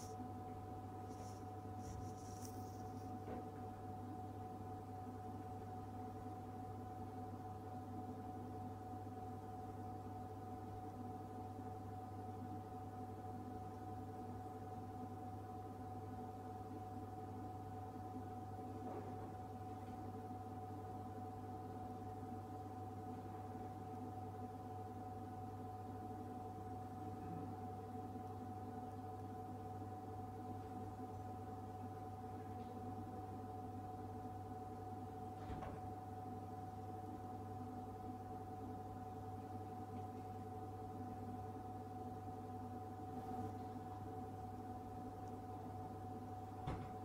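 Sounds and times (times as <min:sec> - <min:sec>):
vending machine humming: 0:00.0 - 0:03.2.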